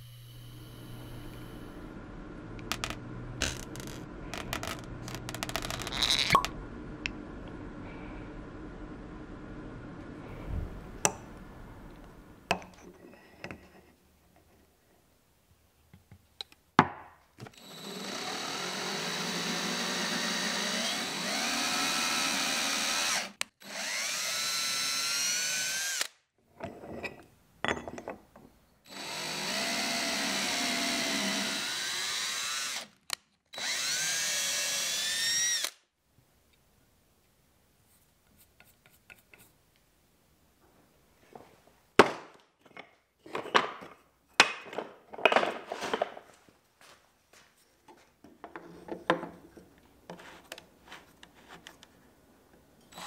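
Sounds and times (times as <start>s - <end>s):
power drill boring into metal: 17.6s - 26.1s, 28.9s - 33.0s, 33.6s - 35.8s.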